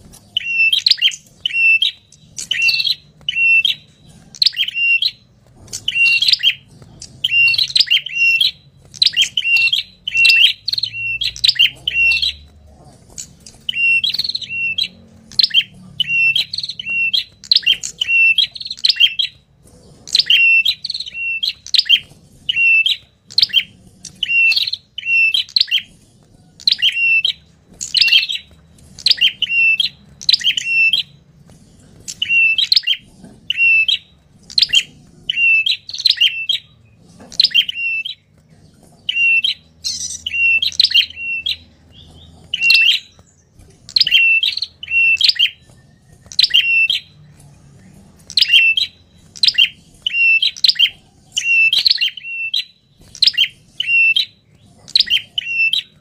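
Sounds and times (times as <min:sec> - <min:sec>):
bird chip notes: 0:00.0 - 0:56.0.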